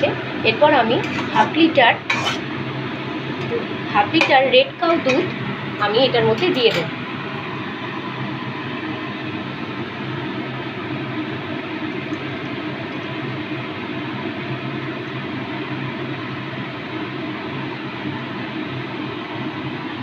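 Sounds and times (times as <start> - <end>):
kitchen hiss: 0.8 - 2.6.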